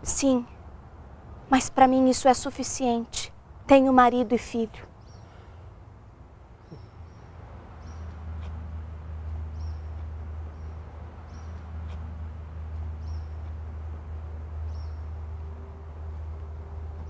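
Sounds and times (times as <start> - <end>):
steady low hum: 0.0 - 17.0
small bird chirping: 4.9 - 5.4, 6.6 - 8.6, 9.3 - 12.0, 12.7 - 13.7, 14.6 - 15.2.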